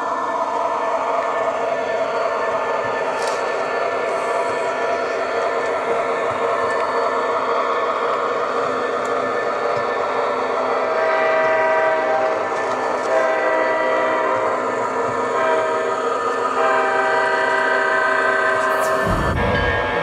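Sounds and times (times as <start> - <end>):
model train running on track: 0.0 - 20.0
locomotive horn blasts: 11.0 - 12.5, 13.1 - 14.5, 15.3 - 15.8, 16.6 - 20.0.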